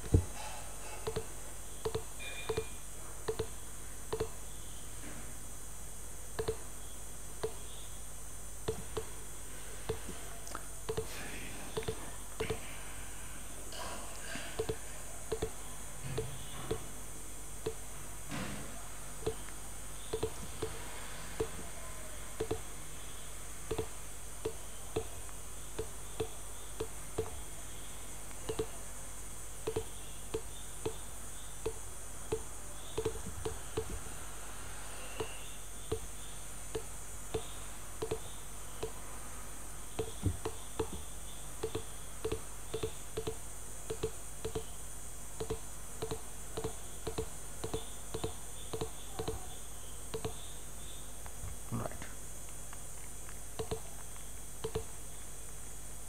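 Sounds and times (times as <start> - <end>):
background hum and hiss: 0.0 - 56.0
computer mouse clicking: 4.1 - 4.4, 31.6 - 34.0.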